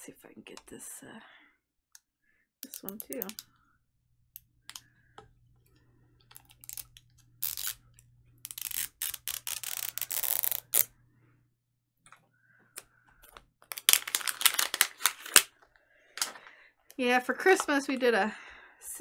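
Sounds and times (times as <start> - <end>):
plastic clicks: 2.0 - 3.6, 4.3 - 10.9, 12.0 - 17.0
wrapper tearing and crinkling: 6.5 - 7.8, 8.5 - 10.9, 13.7 - 15.5.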